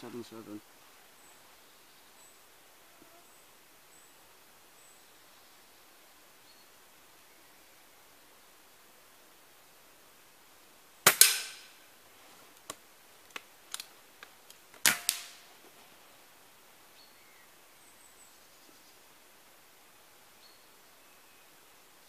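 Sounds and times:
air rifle shots: 11.0s - 11.8s, 14.8s - 15.4s
pellet striking target: 11.1s - 11.7s, 14.8s - 15.4s.

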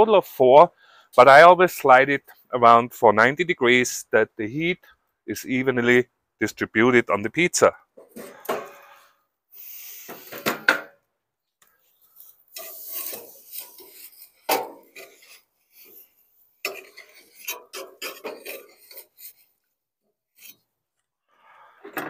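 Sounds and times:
metal peel scraping and clanking: 12.2s - 19.4s.

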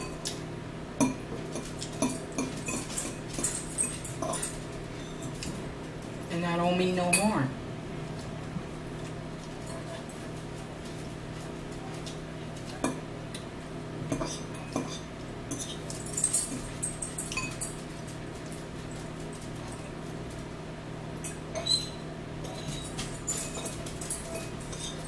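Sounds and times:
forks clinking against bowls: 0.0s - 0.4s, 1.0s - 5.6s, 7.0s - 7.5s, 12.0s - 13.5s, 14.1s - 20.1s, 21.2s - 25.0s
steady low hum: 0.0s - 25.0s.

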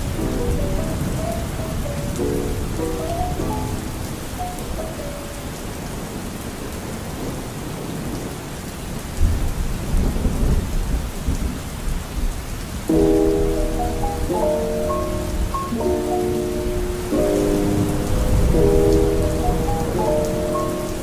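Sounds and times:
soft music: 0.0s - 5.6s, 12.9s - 21.0s
steady rain falling: 0.0s - 21.0s
low rumble of thunder: 9.2s - 12.4s.

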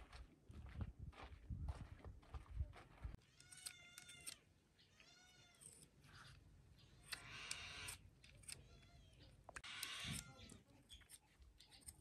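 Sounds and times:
high-pitched animal call: 6.9s - 10.6s.

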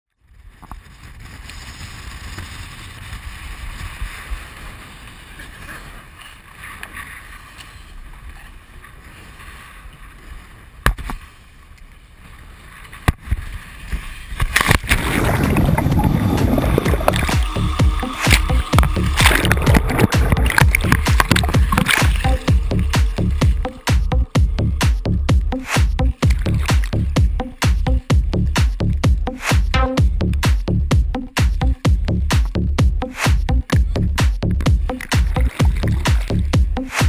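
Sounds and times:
muffled wind and water rumble: 0.1s - 36.9s
underwater splashing and bubbling: 14.4s - 29.1s, 33.5s - 36.9s.

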